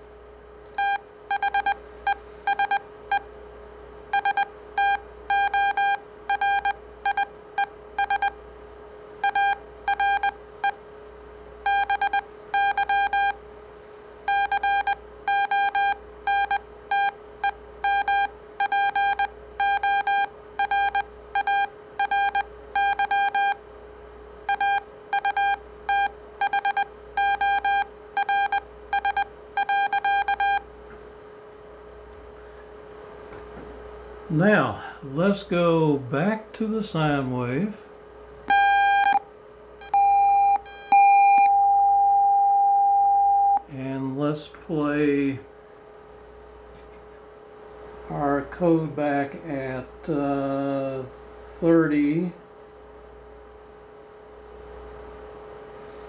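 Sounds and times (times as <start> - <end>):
steady hum: 0.0 - 56.0
morse code tone beeping: 0.8 - 3.2, 4.1 - 8.3, 9.2 - 10.8, 11.7 - 13.4, 14.3 - 23.6, 24.5 - 30.6, 38.5 - 39.2, 39.8 - 43.6.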